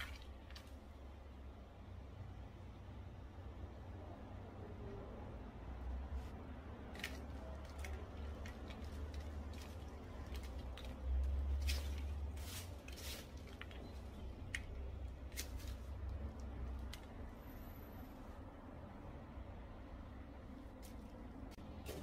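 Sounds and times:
soil and roots crackling: 0.0s - 1.4s, 6.3s - 18.4s, 20.3s - 22.0s.

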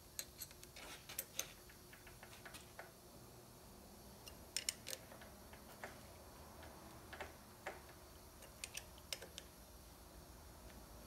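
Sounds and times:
light metal clicks of tools: 0.1s - 2.9s, 4.2s - 6.0s, 8.4s - 9.5s.

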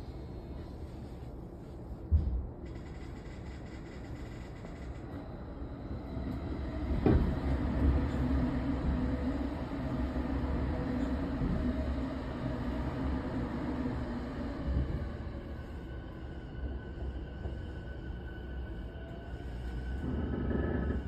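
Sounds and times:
train car rolling rumble: 0.0s - 21.0s
train car clunk: 6.8s - 8.2s.

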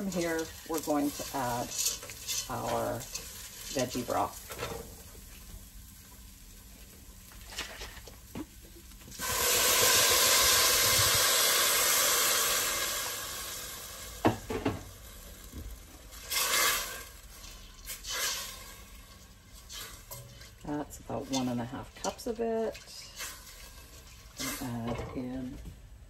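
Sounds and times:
spatula stirring in metal pot: 0.0s - 5.4s, 16.1s - 25.3s
broth sizzling in hot pot: 0.0s - 26.0s.

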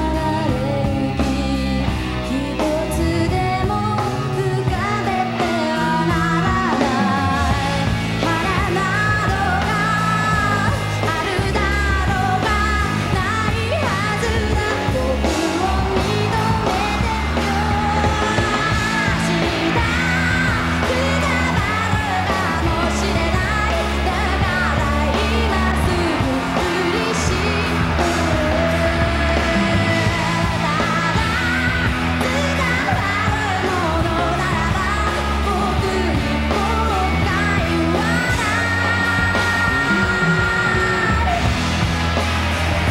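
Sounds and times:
woman singing: 0.0s - 41.7s
electric guitars: 0.0s - 42.9s
rock band playing: 0.0s - 42.9s.

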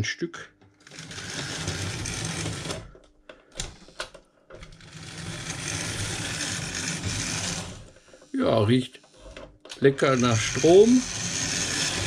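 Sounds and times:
model train motor whirring: 0.8s - 2.9s, 4.7s - 8.0s, 10.0s - 12.0s.

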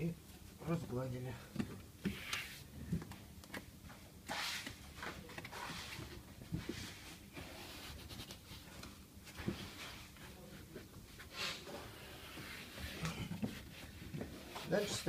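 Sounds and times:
material scraping and rustling: 4.2s - 15.0s.

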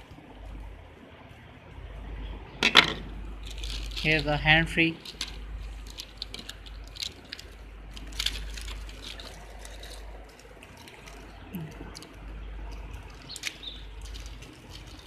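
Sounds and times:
steady low hum: 0.0s - 15.0s
plastic packaging crinkling: 3.4s - 15.0s.

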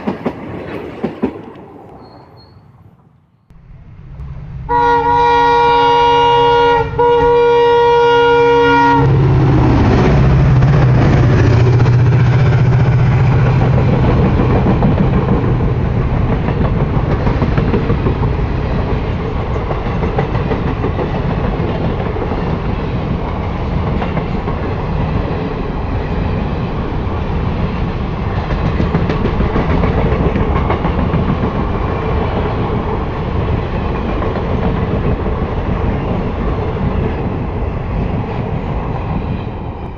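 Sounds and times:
clickety-clack over rail joints: 0.0s - 2.5s, 9.6s - 39.9s
train wheels on rails: 0.0s - 5.1s, 7.0s - 39.9s
locomotive engine drone: 3.1s - 30.6s
locomotive horn blasts: 4.5s - 9.4s.

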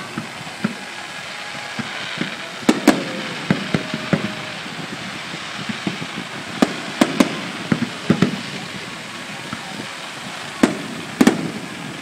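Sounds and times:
fireworks bangs and cracks: 0.0s - 12.0s
steady hiss: 0.0s - 12.0s.

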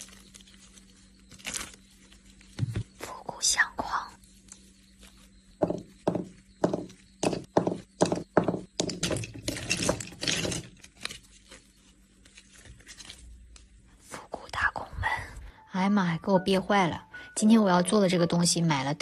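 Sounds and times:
faint handling sounds: 0.0s - 3.4s, 4.0s - 7.2s, 9.4s - 14.7s
resin beads knocking on tabletop: 5.6s - 10.0s.

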